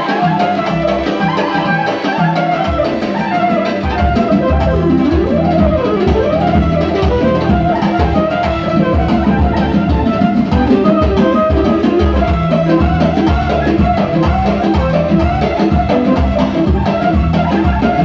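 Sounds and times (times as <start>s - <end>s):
clarinet melody: 0.0s - 18.0s
keyboard accompaniment: 0.0s - 18.0s
steady drum beat: 0.0s - 18.0s.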